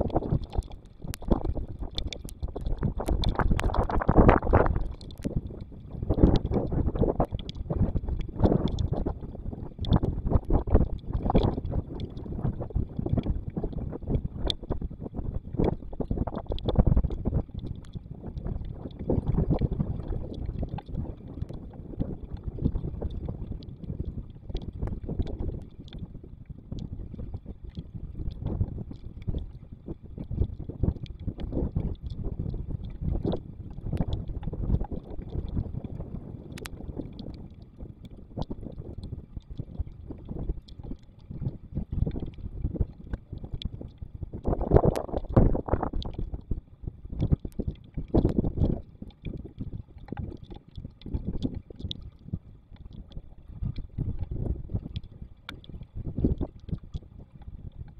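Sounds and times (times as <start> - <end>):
rain ticking: 0.0 - 9.2, 36.5 - 37.4
wind buffeting microphone: 0.0 - 52.4.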